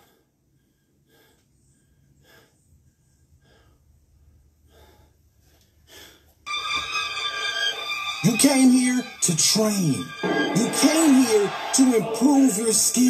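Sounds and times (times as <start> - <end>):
man breathing hard: 0.0 - 6.4
loud music with held tones: 6.5 - 13.0.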